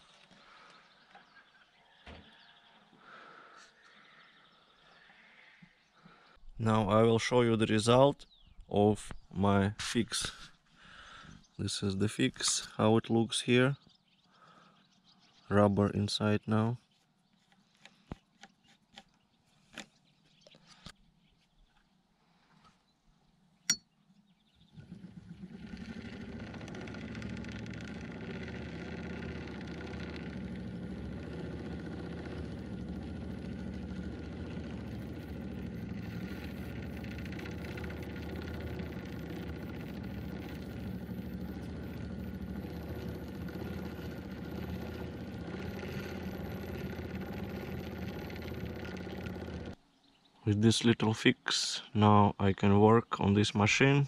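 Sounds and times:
hand-crank sewing machine running: 0:24.7 - 0:49.8.

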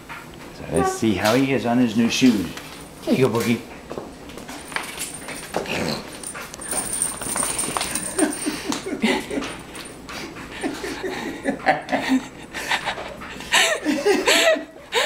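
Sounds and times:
dog boots tapping on tile floor: 0:02.6 - 0:08.8
people laughing: 0:08.1 - 0:09.6, 0:10.5 - 0:15.0.

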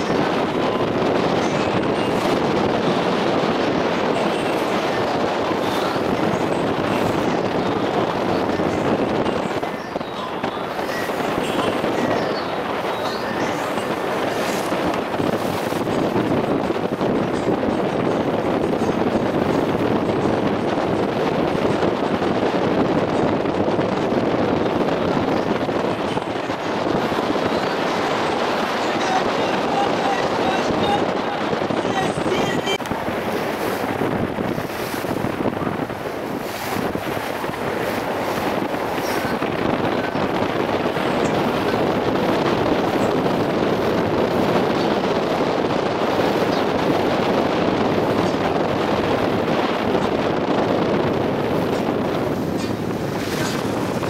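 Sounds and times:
boat engine drone: 0:00.0 - 0:54.0
rushing water: 0:00.0 - 0:54.0
wind buffeting the microphone: 0:00.0 - 0:54.0.

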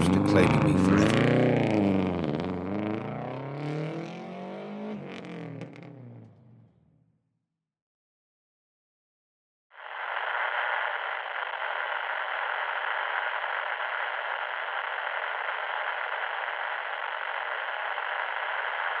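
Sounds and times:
radio static hiss: 0:00.0 - 0:01.2, 0:09.8 - 0:19.0.

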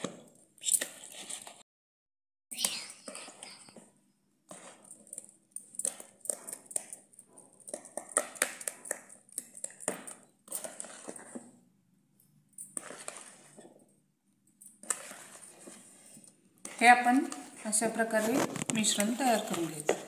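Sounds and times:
whisk beating batter in bowl: 0:04.5 - 0:11.6, 0:12.7 - 0:13.8, 0:14.8 - 0:18.0.

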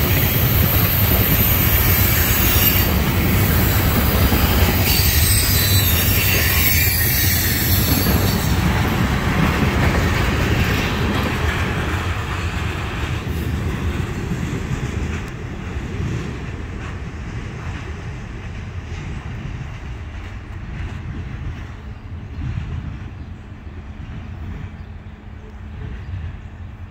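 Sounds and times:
train wheels rumbling on rail: 0:00.0 - 0:26.9
high-pitched wheel squeal: 0:00.6 - 0:08.6.

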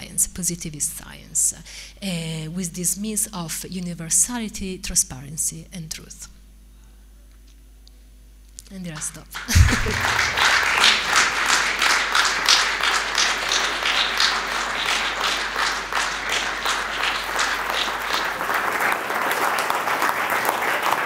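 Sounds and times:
audience applauding: 0:09.0 - 0:21.0.

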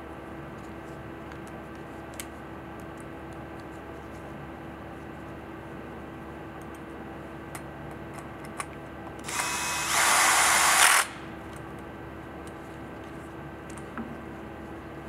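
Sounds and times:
cordless drill whining: 0:09.2 - 0:11.2.

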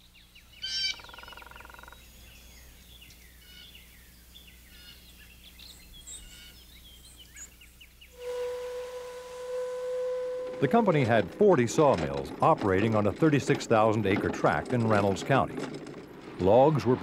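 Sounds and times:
birds chirping: 0:00.0 - 0:08.9.

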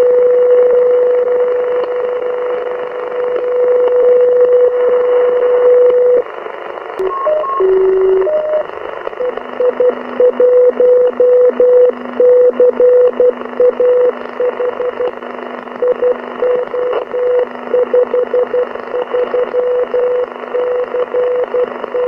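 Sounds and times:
radio receiver hiss: 0:06.3 - 0:10.2
brief tones at other pitches: 0:07.0 - 0:09.3
long carrier tone: 0:07.0 - 0:15.1
morse code tones: 0:07.0 - 0:15.2, 0:15.8 - 0:22.0.

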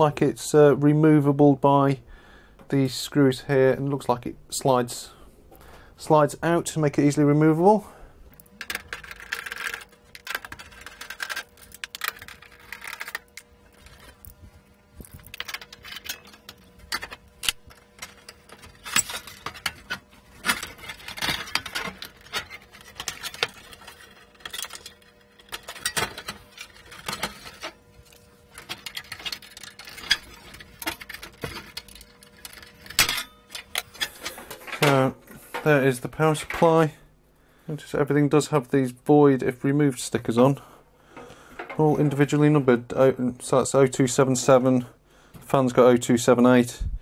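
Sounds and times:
metallic clicks and scrapes: 0:08.3 - 0:14.4, 0:15.0 - 0:36.8.

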